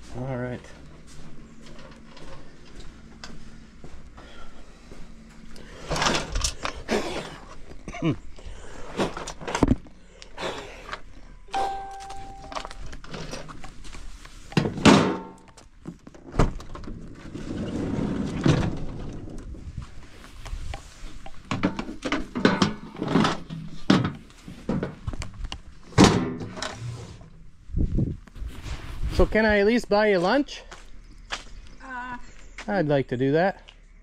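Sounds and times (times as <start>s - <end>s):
ringing metal clang: 11.5s - 12.8s
short steady tone: 11.5s - 12.8s.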